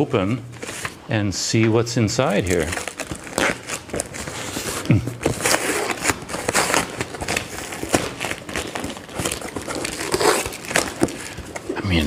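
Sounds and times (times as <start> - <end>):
plastic wrapping crinkling: 2.2 - 11.8.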